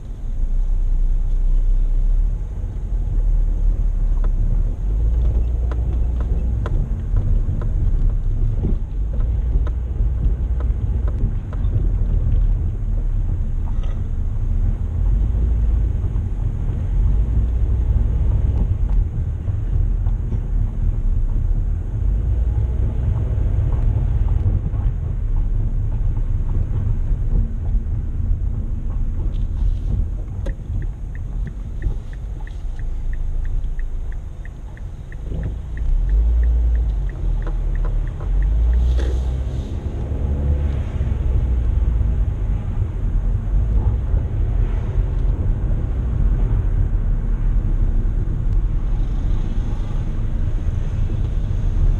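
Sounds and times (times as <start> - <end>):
car engine and tyre rumble: 0.0 - 51.9
light even ticking: 25.4 - 39.6.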